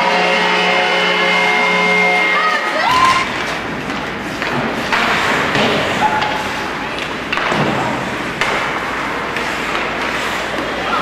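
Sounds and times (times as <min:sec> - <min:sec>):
hockey sticks and puck knocking: 0:03.2 - 0:11.0
puck thudding against boards: 0:03.3 - 0:11.0.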